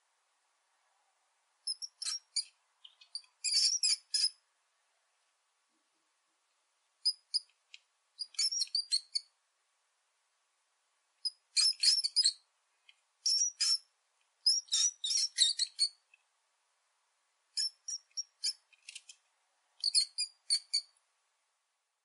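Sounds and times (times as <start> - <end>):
small rodent squeaking: 1.7 - 4.4, 7.0 - 7.6, 8.2 - 9.3, 11.2 - 12.5, 13.2 - 16.1, 17.5 - 19.2, 19.8 - 21.0.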